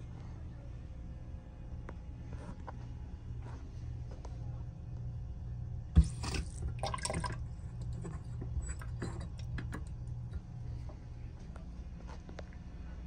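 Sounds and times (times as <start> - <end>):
water rushing into basin: 6.0 - 7.5
water dripping: 6.0 - 8.0.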